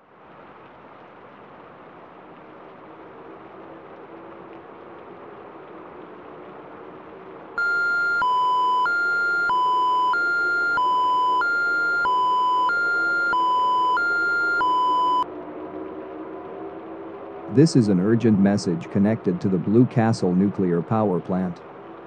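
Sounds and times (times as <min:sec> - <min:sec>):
hi-lo emergency alert tone: 0:07.6 - 0:15.2.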